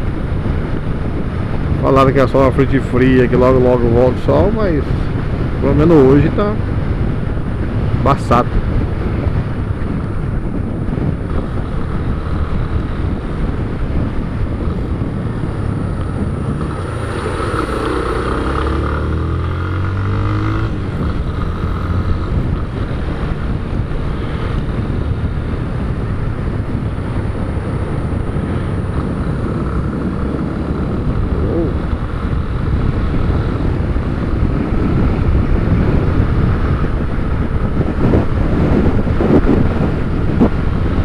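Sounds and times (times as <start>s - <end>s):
rushing air noise: 2.6s - 41.0s
motorcycle engine revving: 8.6s - 41.0s.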